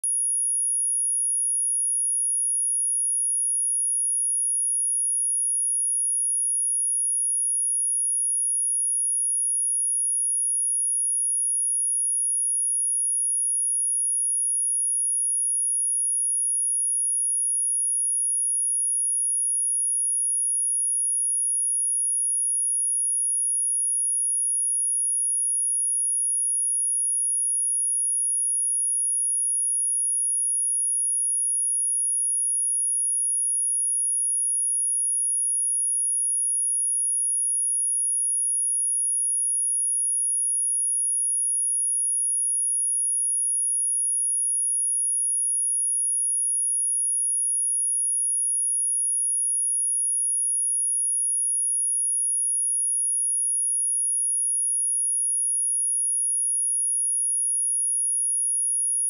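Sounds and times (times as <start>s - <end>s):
high-pitched sine test tone: 0.0s - 5.0s.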